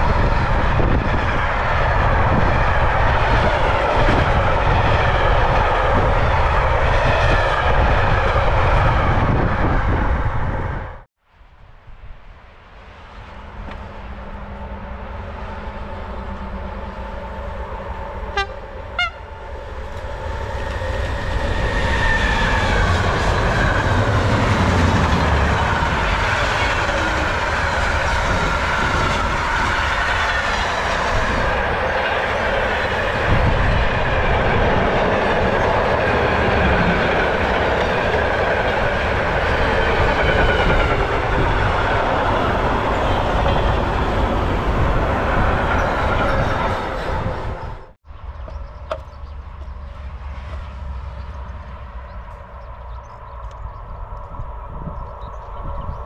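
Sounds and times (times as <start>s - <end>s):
train rumbling past: 0.0s - 56.0s
train horn toots: 18.2s - 19.5s.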